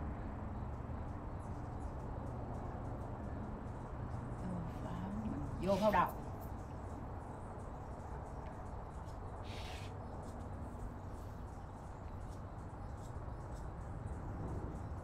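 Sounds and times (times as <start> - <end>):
low outdoor rumble: 0.0 - 15.0
brief hiss: 9.5 - 9.9.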